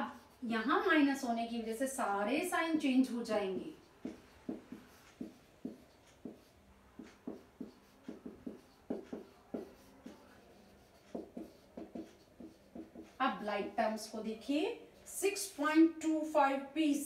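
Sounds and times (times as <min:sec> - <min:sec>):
marker pen writing on whiteboard: 0:00.0 - 0:01.0, 0:03.1 - 0:15.6.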